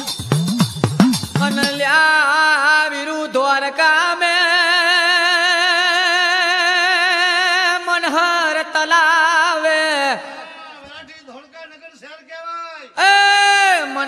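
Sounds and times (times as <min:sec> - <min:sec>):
man singing folk chant: 0:01.4 - 0:11.8, 0:12.4 - 0:14.0.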